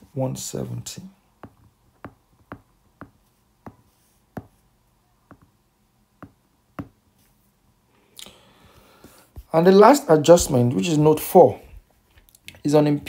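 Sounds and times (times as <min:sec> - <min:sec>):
stylus tapping on glass screen: 0:01.4 - 0:03.8, 0:06.2 - 0:07.0.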